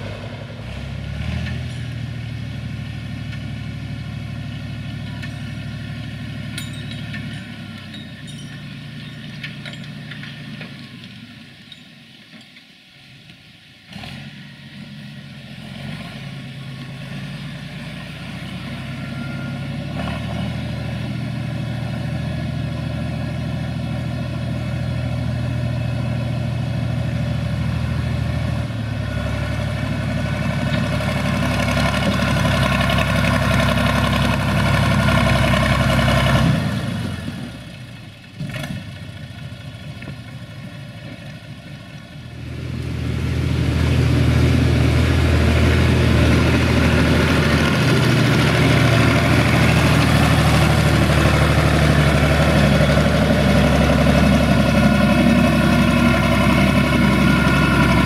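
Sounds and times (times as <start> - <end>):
tractor diesel engine revving: 0.0 - 11.1, 13.9 - 58.0.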